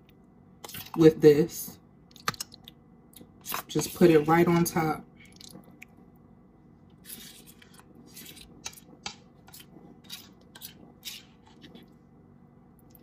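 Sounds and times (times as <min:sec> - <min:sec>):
utensil scraping in baking pan: 0:07.0 - 0:11.8.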